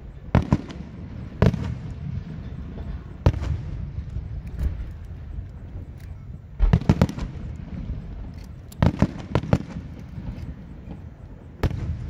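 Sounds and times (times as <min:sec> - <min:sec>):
firework shells bursting: 0:00.3 - 0:12.0.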